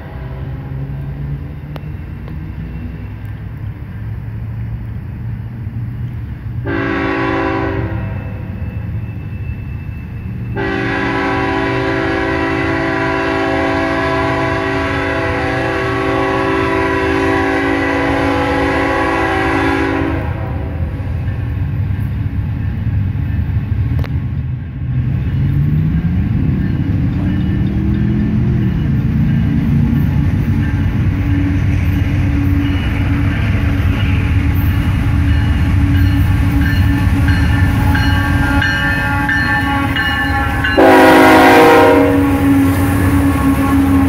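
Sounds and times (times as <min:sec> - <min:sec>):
locomotive air horn blasts: 0:06.6 - 0:08.6, 0:10.6 - 0:21.0, 0:35.6 - 0:44.0.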